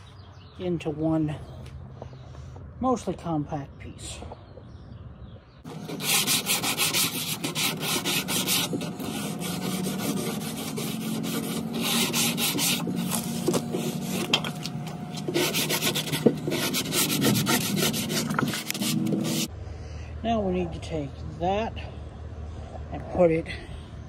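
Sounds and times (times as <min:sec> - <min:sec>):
sanding sponge scrubbing plywood: 0:05.7 - 0:19.5.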